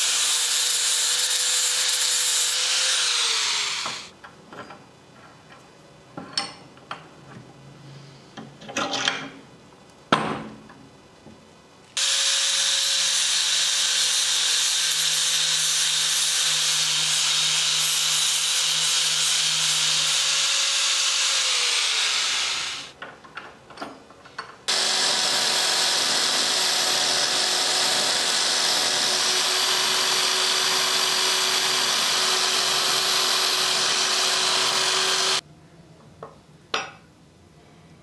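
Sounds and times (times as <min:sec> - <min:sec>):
angle grinder grinding steel: 0:00.0 - 0:04.1, 0:12.0 - 0:22.9, 0:24.7 - 0:35.4.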